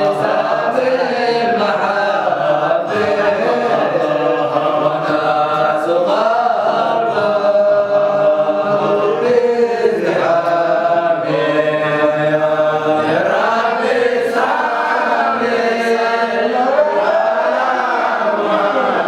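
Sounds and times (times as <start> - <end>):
men chanting in unison: 0.0 - 19.0.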